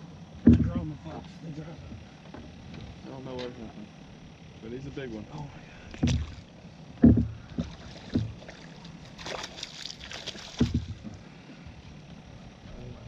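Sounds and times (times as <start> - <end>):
dull thumps: 0.4 - 1.0, 5.9 - 6.4, 7.0 - 8.6, 10.4 - 11.2
fish splashing at water surface: 7.6 - 11.0.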